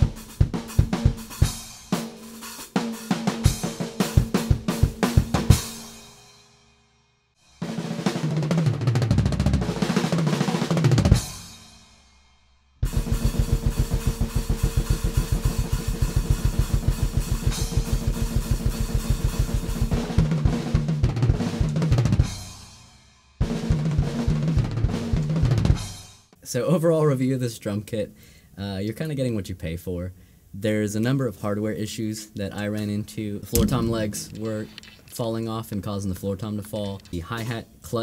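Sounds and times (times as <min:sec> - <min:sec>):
acoustic drum kit playing: 0:00.0 - 0:06.1, 0:07.7 - 0:11.6, 0:12.8 - 0:22.7, 0:33.5 - 0:35.1.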